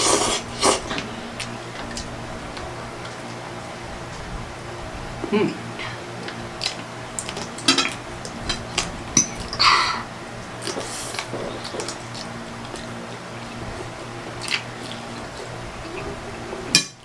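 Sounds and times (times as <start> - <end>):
wet mouth noises: 0.0 - 2.1
chewing and biting: 10.6 - 16.2
cutlery clicking against plates: 16.7 - 17.0.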